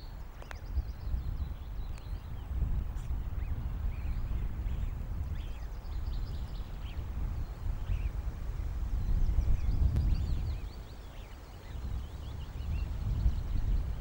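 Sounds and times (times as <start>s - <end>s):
wind buffeting a microphone: 0.0s - 14.0s.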